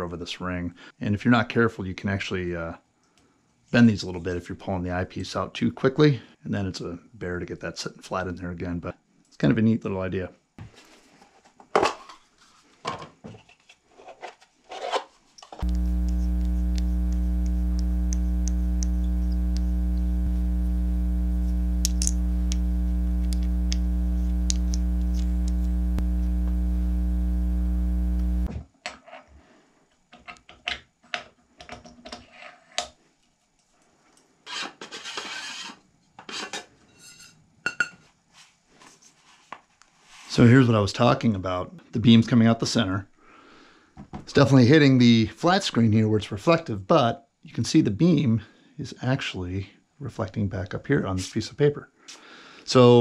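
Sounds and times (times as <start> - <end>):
loud electrical hum with buzz: 15.6 - 28.6.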